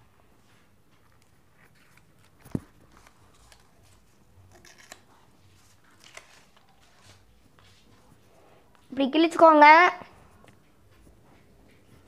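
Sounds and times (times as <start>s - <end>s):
paper tearing: 3.0s - 7.2s.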